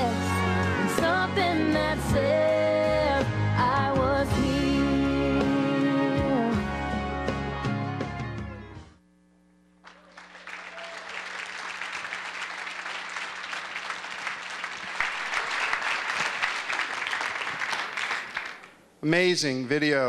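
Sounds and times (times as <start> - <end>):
audience applauding: 9.8 - 18.8.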